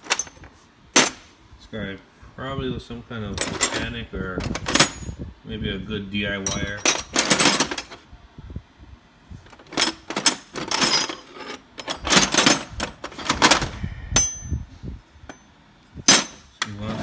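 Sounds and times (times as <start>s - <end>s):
metal wrenches clinking: 0.0s - 1.3s, 3.4s - 5.2s, 6.4s - 8.0s, 9.6s - 14.6s, 16.1s - 17.0s.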